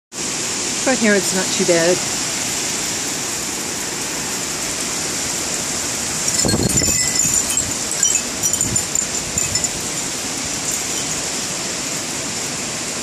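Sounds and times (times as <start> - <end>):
heavy rain hissing: 0.2 - 13.0
wind gust on microphone: 6.0 - 11.6.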